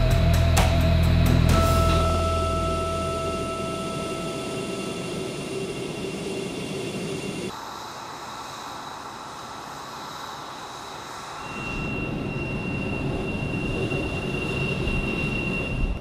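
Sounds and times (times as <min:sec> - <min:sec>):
high turbine whine: 0:00.0 - 0:16.0
jet turbine rush: 0:03.3 - 0:16.0.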